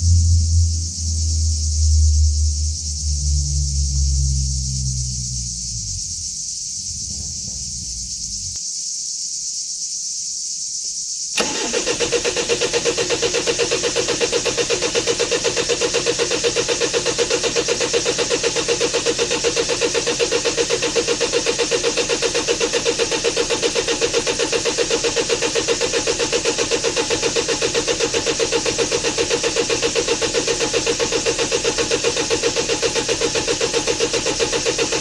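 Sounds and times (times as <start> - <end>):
starter cranking diesel engine: 11.4 - 35.0.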